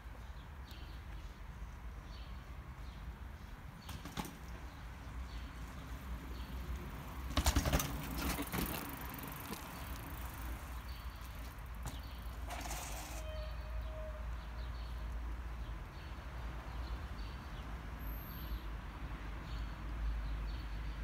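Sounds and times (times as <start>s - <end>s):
bike knocks and rattles: 3.8s - 4.8s, 7.2s - 13.2s.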